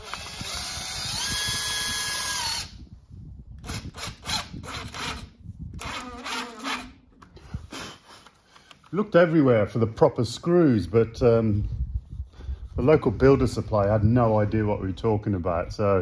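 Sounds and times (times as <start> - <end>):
power drill drilling: 0.0 - 2.7, 5.8 - 6.9.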